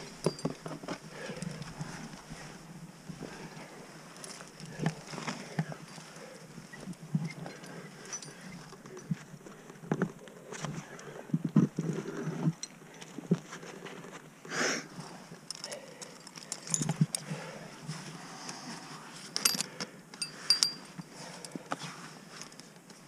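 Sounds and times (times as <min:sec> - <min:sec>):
climbing hardware clinking: 0:00.0 - 0:01.7, 0:04.2 - 0:09.2, 0:15.4 - 0:17.4, 0:19.3 - 0:21.6.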